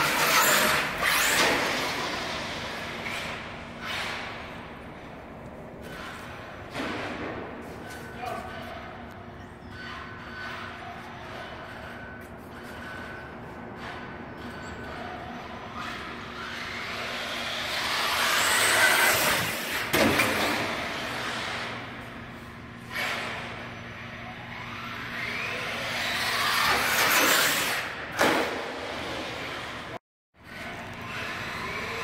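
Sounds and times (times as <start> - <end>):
rc truck motor whine: 0.0 - 3.1, 16.3 - 19.9, 24.0 - 27.9, 30.6 - 32.0.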